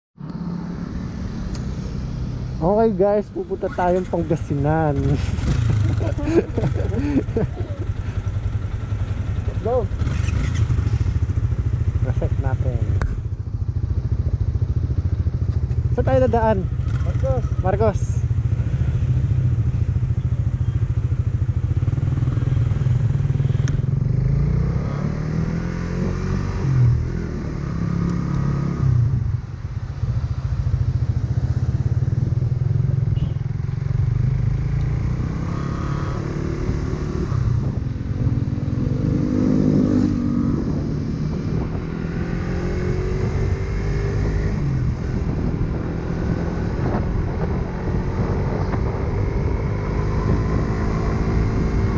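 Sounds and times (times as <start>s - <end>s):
motorcycle engine accelerating: 0.2s - 51.9s
low engine rumble: 0.8s - 18.6s.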